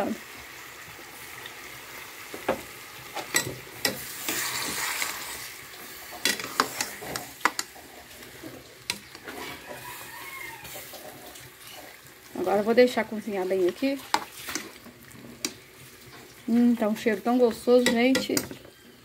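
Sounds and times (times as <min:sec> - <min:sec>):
chicken and onion sizzling: 0:00.0 - 0:19.0
metal spoon scraping a pot: 0:06.2 - 0:12.0.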